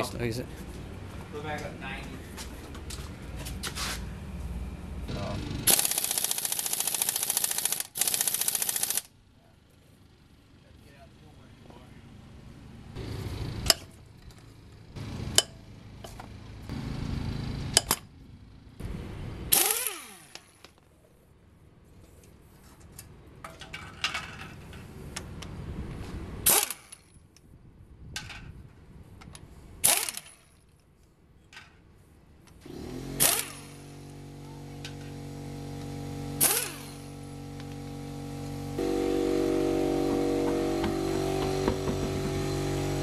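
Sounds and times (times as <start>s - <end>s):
pneumatic impact wrench bursts: 5.1s - 9.1s, 19.5s - 20.6s, 26.4s - 27.1s, 29.8s - 30.6s, 32.6s - 43.0s
machine hum of several tones: 32.6s - 43.0s.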